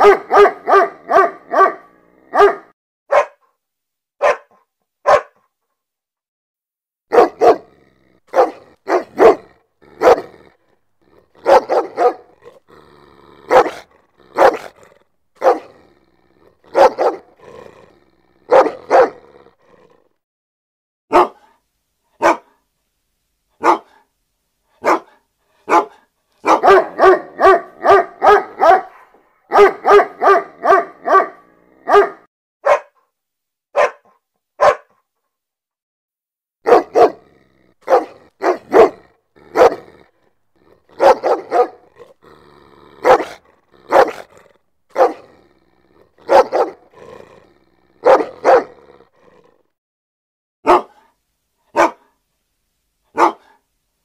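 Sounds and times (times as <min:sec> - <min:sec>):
dog barking: 0:00.0 - 0:03.5, 0:04.2 - 0:05.5, 0:07.1 - 0:10.5, 0:11.3 - 0:12.6, 0:13.4 - 0:15.8, 0:16.6 - 0:17.4, 0:18.5 - 0:19.3, 0:21.1 - 0:21.6, 0:22.2 - 0:22.6, 0:23.6 - 0:24.1, 0:24.8 - 0:33.0, 0:33.7 - 0:35.0, 0:36.6 - 0:40.1, 0:40.8 - 0:42.2, 0:43.0 - 0:45.4, 0:46.1 - 0:47.2, 0:47.9 - 0:48.9, 0:50.6 - 0:52.2, 0:53.1 - 0:53.6.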